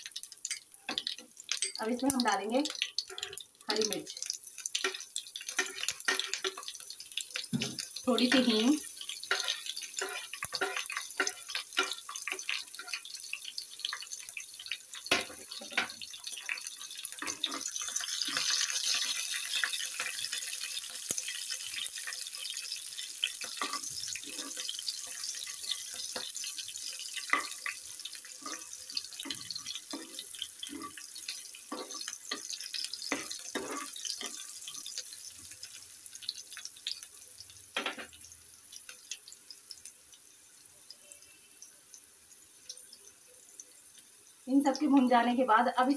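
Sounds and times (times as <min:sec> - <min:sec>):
spices sizzling in hot oil: 0:00.0 - 0:45.9
steel spoon stirring in pan: 0:00.2 - 0:35.6.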